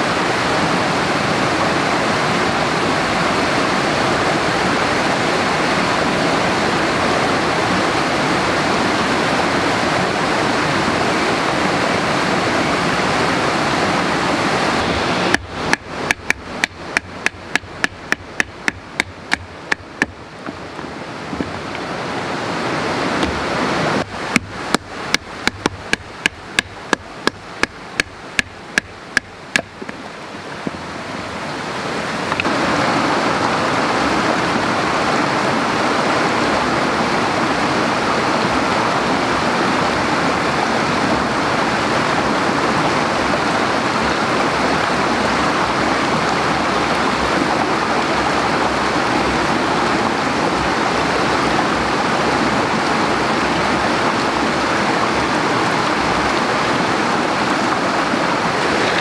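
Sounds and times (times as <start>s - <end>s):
running water rushing: 0.0s - 59.0s
sharp knocks: 15.3s - 20.6s, 24.3s - 30.0s.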